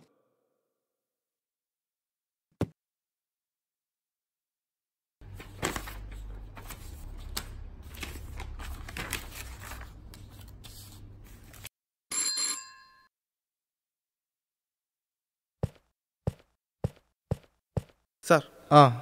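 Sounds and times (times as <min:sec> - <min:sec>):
papers rustling on a desk: 0:05.2 - 0:11.7
desk call bell ringing: 0:12.1 - 0:13.1.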